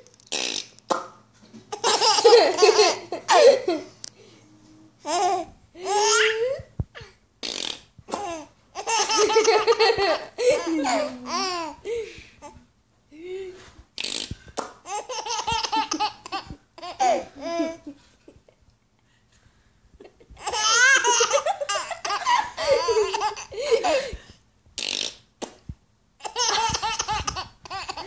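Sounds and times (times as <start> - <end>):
baby giggling: 1.7 - 3.9, 5.0 - 7.1, 8.1 - 11.8, 14.2 - 18.0, 20.0 - 24.2, 26.2 - 28.0.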